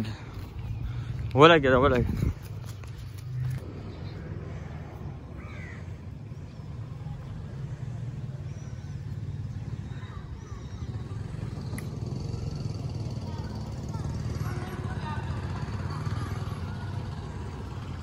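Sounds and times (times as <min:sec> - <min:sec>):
distant traffic: 0:00.0 - 0:18.0
wind: 0:00.0 - 0:18.0.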